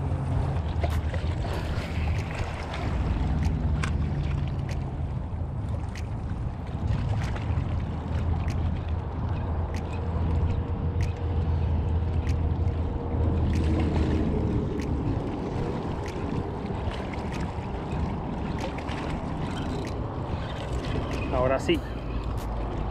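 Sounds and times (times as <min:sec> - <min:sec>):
choppy water: 0:00.0 - 0:22.9
wind rumble: 0:00.0 - 0:22.9
light ticks: 0:03.4 - 0:04.0, 0:04.6 - 0:04.9, 0:08.4 - 0:12.8, 0:16.0 - 0:16.4.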